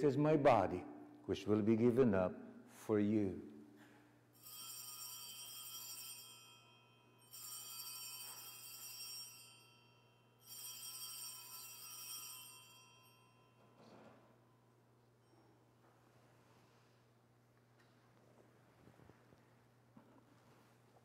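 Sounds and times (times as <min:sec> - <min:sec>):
altar bells ringing: 0:04.4 - 0:13.8.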